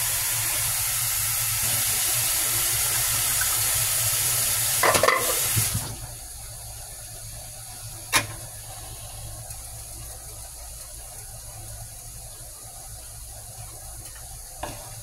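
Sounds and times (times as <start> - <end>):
running water from tap: 0.0 - 6.1.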